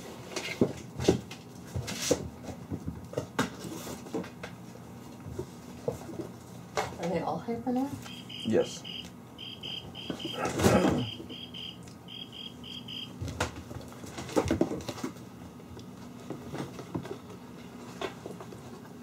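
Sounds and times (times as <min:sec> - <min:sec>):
rapid high chirping: 0:08.1 - 0:10.4, 0:11.0 - 0:13.1.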